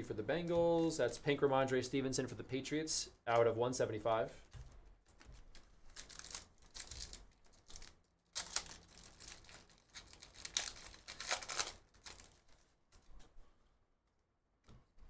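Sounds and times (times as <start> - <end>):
foil wrapper crinkling and tearing: 5.2 - 13.1.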